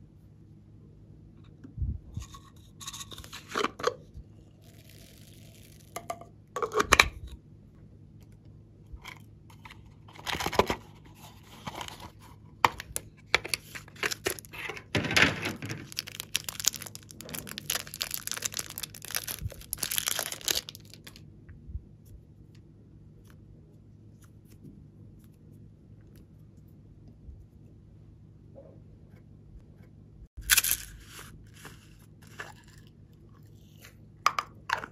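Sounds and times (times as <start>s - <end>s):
plastic wrapper crinkling and tearing: 12.8s - 14.7s, 15.5s - 21.2s, 30.4s - 31.4s.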